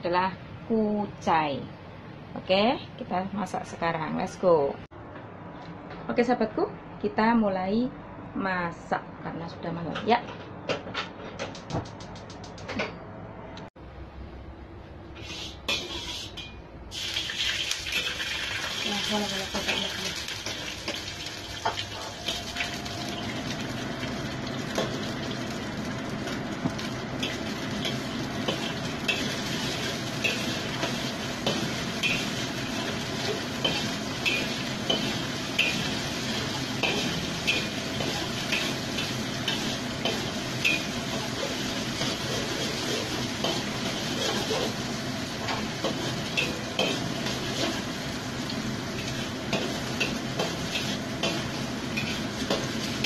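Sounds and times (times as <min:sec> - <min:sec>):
metal spatula scraping wok: 0:15.1 - 0:16.6, 0:27.2 - 0:44.9, 0:49.0 - 0:53.0
egg sizzling in oil: 0:15.2 - 0:53.0.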